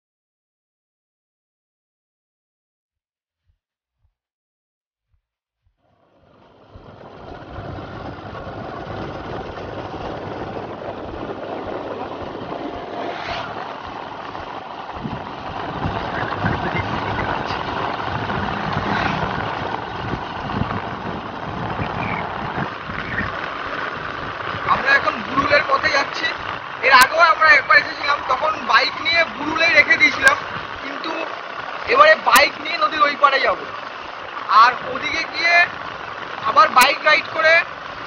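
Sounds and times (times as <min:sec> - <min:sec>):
motorcycle cruising: 0:05.8 - 0:38.0
wind rushing over microphone: 0:06.1 - 0:32.8.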